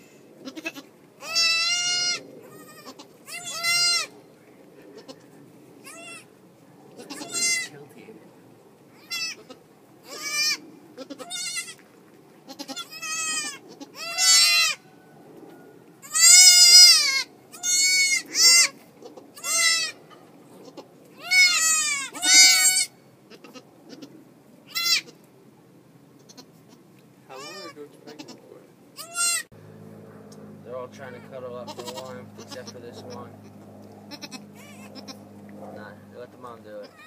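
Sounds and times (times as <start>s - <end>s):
goat kids bleating: 0.4s - 4.1s, 4.9s - 6.3s, 6.9s - 7.8s, 8.9s - 14.8s, 16.0s - 20.0s, 20.6s - 25.2s, 26.2s - 28.4s, 29.0s - 29.5s, 31.0s - 35.4s, 36.8s - 37.0s.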